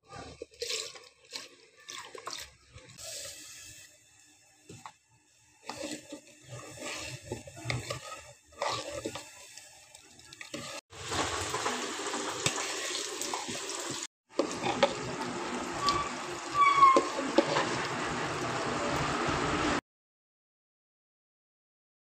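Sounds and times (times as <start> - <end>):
ladle scraping a metal pot: 0.0 - 3.7, 5.6 - 9.5, 14.4 - 18.0.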